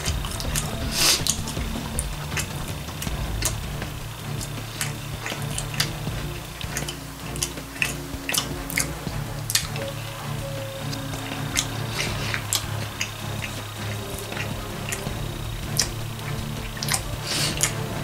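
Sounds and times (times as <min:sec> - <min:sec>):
quiet background music: 0:00.0 - 0:18.0
close chewing with mouth clicks: 0:04.2 - 0:09.9, 0:10.9 - 0:17.9.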